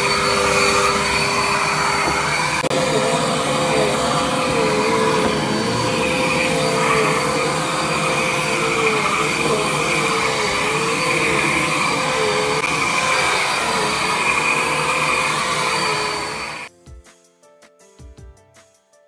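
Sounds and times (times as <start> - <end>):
vacuum cleaner on carpet: 0.0 - 16.7.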